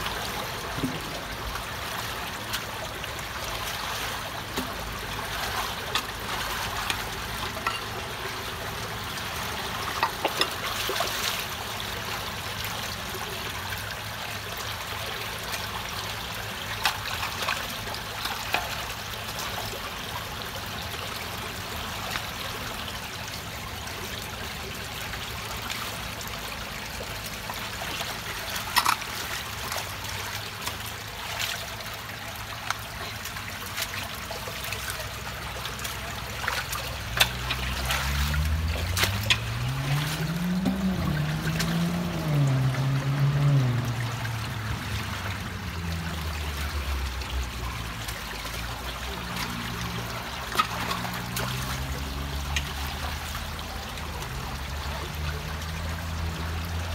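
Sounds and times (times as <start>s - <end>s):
water rushing through culvert: 0.0s - 56.9s.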